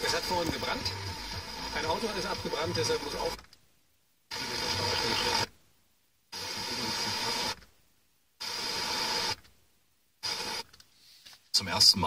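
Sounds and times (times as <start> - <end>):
radio static hissing: 0.0 - 3.5, 4.3 - 5.6, 6.3 - 7.7, 8.4 - 9.5, 10.2 - 12.0.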